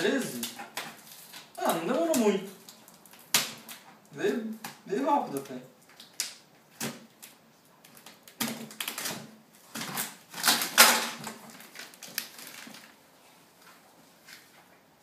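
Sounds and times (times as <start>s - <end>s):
paper packing rustling: 5.2s - 13.0s.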